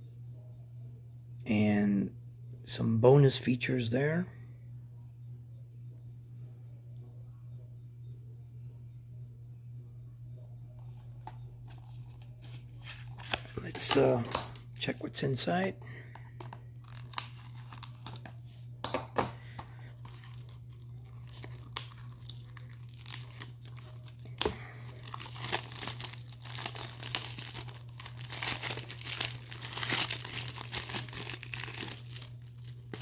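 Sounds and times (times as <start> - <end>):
plastic wrap crinkling and tearing: 16.8 - 18.4, 19.7 - 33.0.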